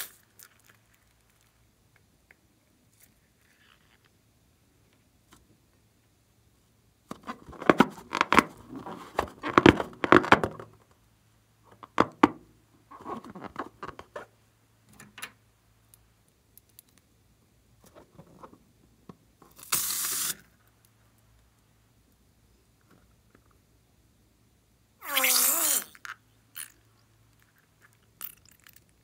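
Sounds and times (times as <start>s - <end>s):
brief hiss: 19.6s - 20.5s
squeaky rubbing of slime balloon: 25.0s - 26.7s.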